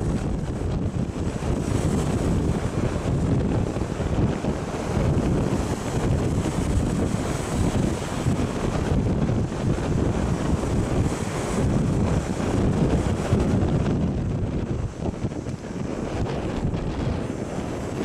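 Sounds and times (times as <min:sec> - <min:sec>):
waves washing against rocks: 0:00.0 - 0:18.0
wind buffeting microphone: 0:00.0 - 0:18.0.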